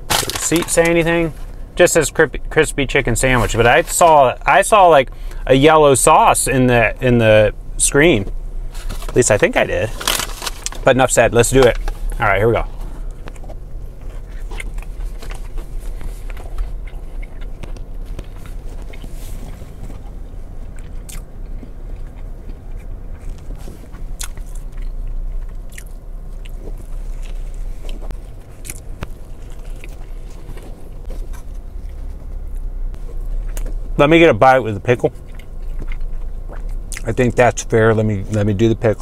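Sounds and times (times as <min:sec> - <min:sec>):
steady low hum: 0:00.0 - 0:39.0
man chewing crunchy food: 0:11.7 - 0:34.0, 0:35.0 - 0:37.3.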